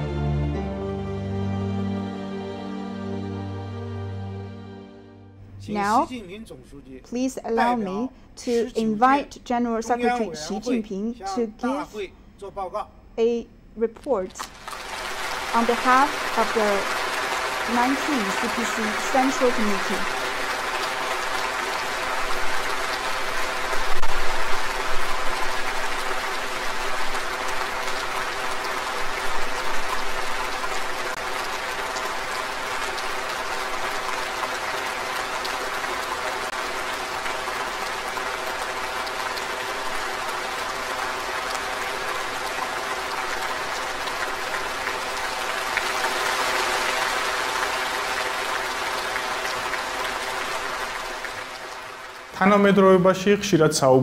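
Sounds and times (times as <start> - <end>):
large crowd applauding: 7.6 - 8.8, 10.0 - 10.8, 14.4 - 53.3.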